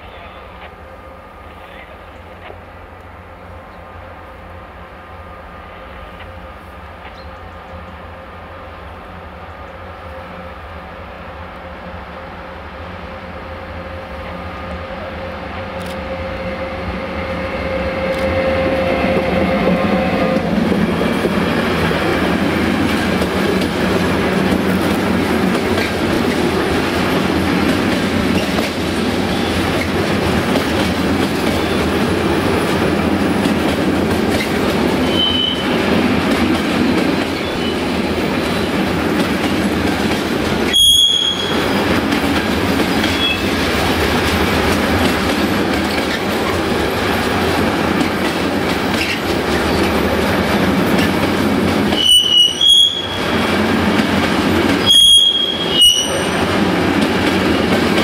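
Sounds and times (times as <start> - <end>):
freight train wheels rumbling: 0.0 - 58.0
short high-pitched squeals: 35.0 - 35.8, 40.7 - 41.7, 52.0 - 53.3, 54.8 - 56.4.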